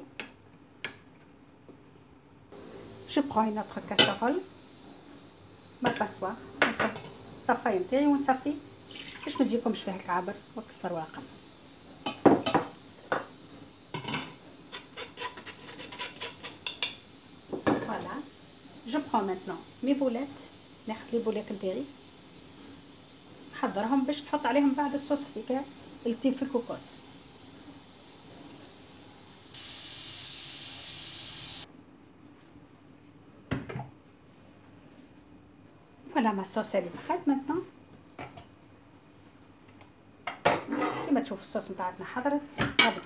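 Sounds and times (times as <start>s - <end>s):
pressure cooker steam hiss: 2.5s - 31.7s.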